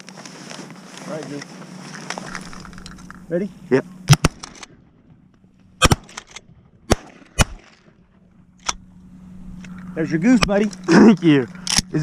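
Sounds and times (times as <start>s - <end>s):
shotgun shots: 4.1s - 4.7s, 5.8s - 8.0s.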